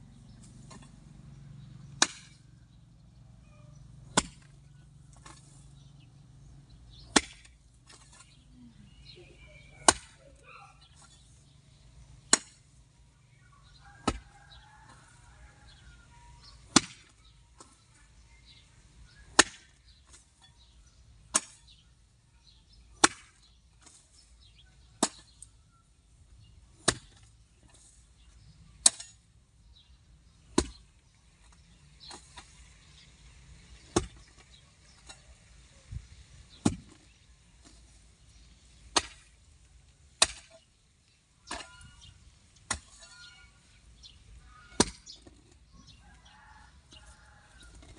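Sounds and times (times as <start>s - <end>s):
hoe chopping into dry ground: 4.0s - 5.6s, 7.0s - 8.4s, 30.4s - 30.8s, 33.8s - 34.3s, 36.5s - 39.4s, 40.2s - 40.7s.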